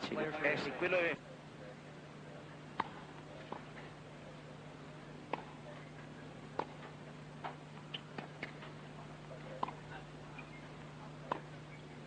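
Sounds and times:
steady low hum: 0.0s - 12.0s
tennis ball pops: 2.7s - 3.7s, 5.3s - 5.6s, 6.5s - 8.7s, 9.6s - 9.8s, 11.2s - 11.5s.

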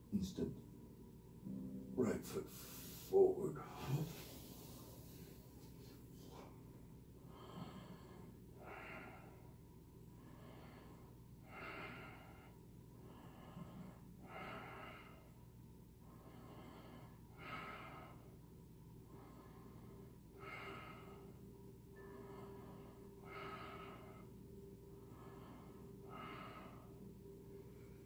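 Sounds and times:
low steady hum: 0.0s - 28.0s
faint breathing through nose: 2.5s - 6.6s, 7.3s - 9.6s, 19.0s - 28.0s.

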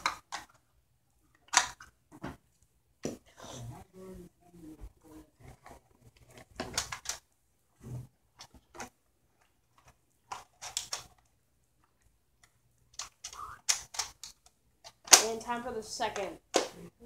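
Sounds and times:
plastic toy blaster clicking: 13.0s - 15.4s.

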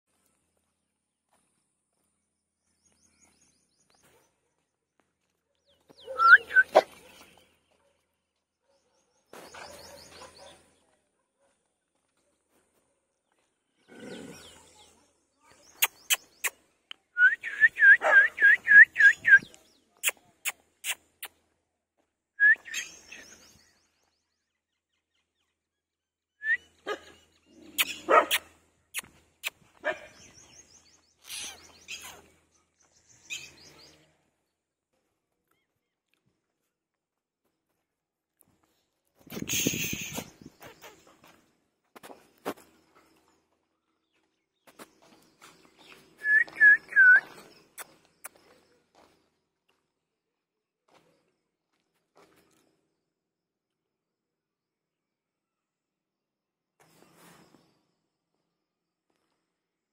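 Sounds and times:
puppies yipping: 6.0s - 7.0s.

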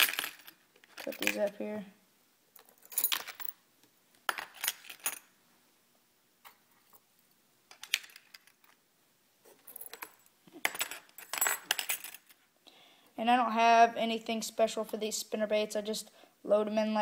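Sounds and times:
metal lures clinking on plastic: 0.0s - 1.6s.

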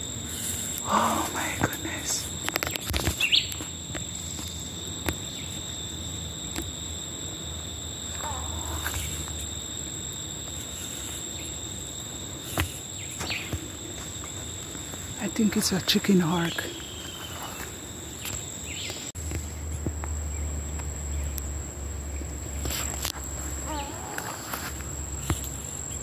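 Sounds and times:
high-pitched insect drone: 0.0s - 26.0s
bird chirps: 3.2s - 3.6s, 16.4s - 19.7s.

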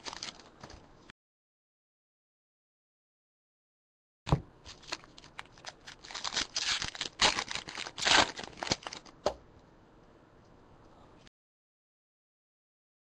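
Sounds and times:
foil wrapper crinkling and tearing: 0.0s - 0.5s, 4.7s - 9.1s.

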